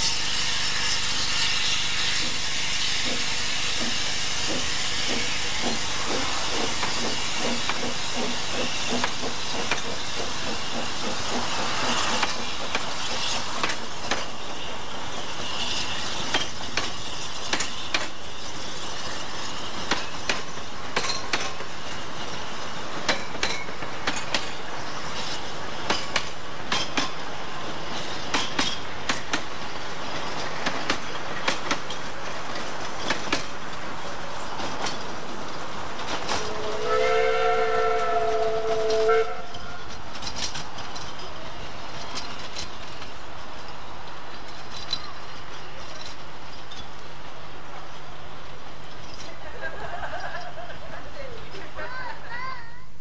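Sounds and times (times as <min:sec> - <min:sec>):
train wheels clicking over rail joints: 0:00.0 - 0:51.8
steam locomotive whistle: 0:36.3 - 0:39.9.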